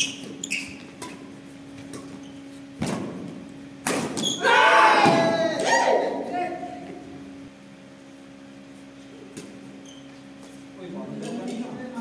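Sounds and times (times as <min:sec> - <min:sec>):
loud raised voices: 0:04.4 - 0:06.7.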